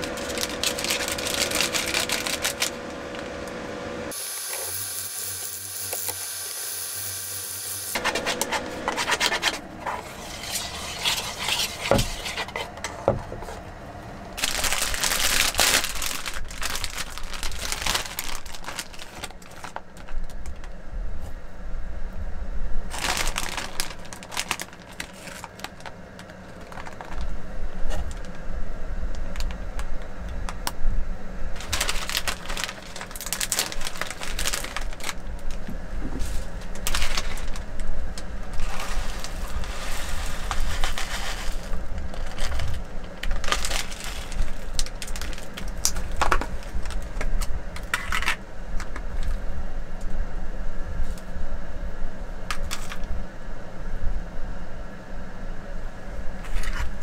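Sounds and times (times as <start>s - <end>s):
plastic bags rustling: 0.0s - 3.6s, 14.4s - 20.7s, 22.9s - 28.4s, 31.6s - 49.4s.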